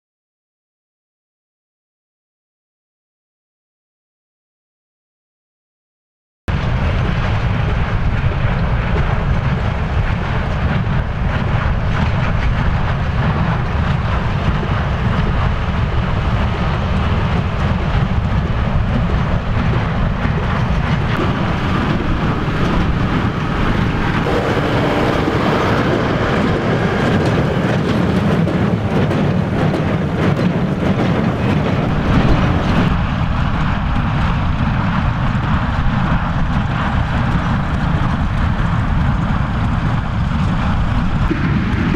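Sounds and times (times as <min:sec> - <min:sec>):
tractor engine under load: 0:06.8 - 0:41.9
baler working: 0:07.4 - 0:34.6.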